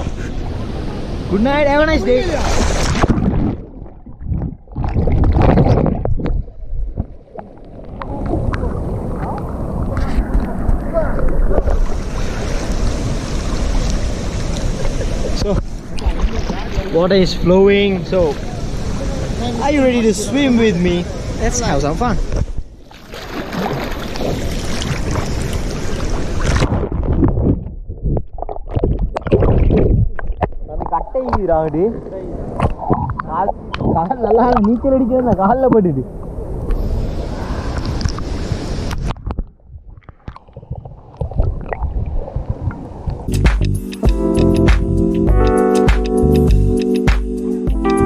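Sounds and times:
water splashing: 0.0 - 43.3
muffled underwater rumble: 3.0 - 12.1
river water rushing: 11.2 - 21.8.

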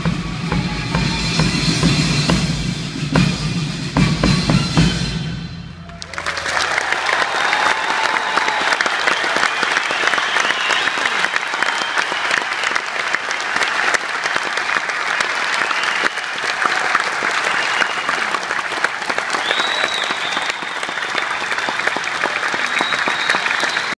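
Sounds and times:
large audience applauding: 5.8 - 24.0.

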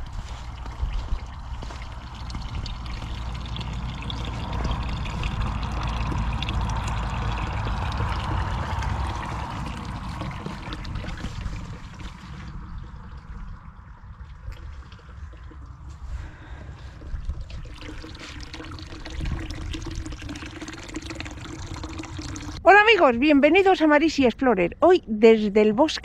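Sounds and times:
low rumble: 0.0 - 21.2
fountain water trickling into basin: 0.0 - 22.6.

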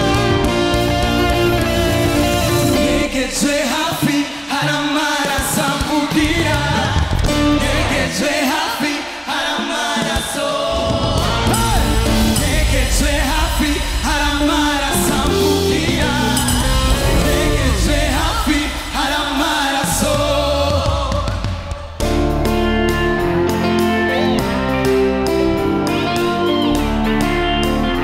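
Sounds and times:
people singing: 0.0 - 22.1
gospel band playing: 0.0 - 28.0.

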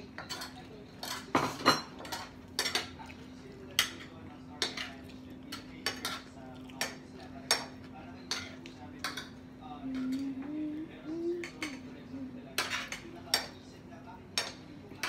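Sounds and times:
cutlery clinking on plates: 0.0 - 10.3, 12.6 - 13.6, 14.3 - 15.0
faint steady hum: 2.4 - 15.0.

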